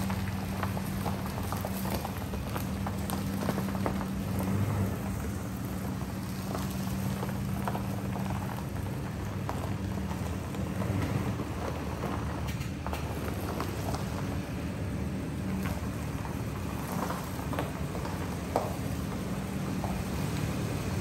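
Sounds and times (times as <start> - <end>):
truck engine running: 0.0 - 21.0.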